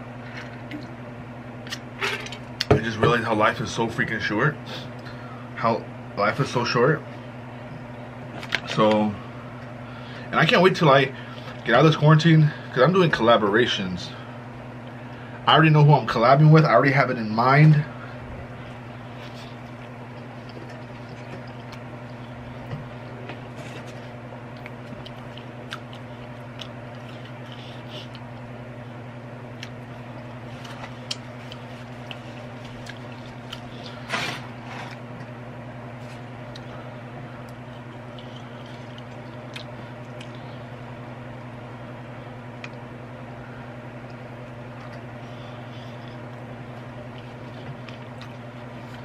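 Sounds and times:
steady low hum: 0.0s - 49.0s
chewing food: 19.0s - 28.5s, 29.5s - 34.0s, 37.4s - 40.6s, 44.0s - 49.0s.

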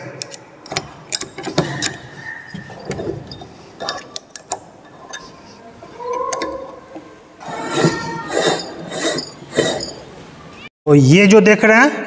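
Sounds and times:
metal rattling and scraping: 0.6s - 10.2s.

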